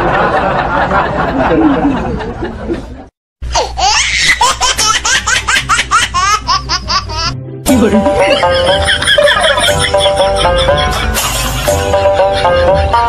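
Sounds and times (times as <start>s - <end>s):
high-pitched rapid laughter: 8.2s - 13.0s.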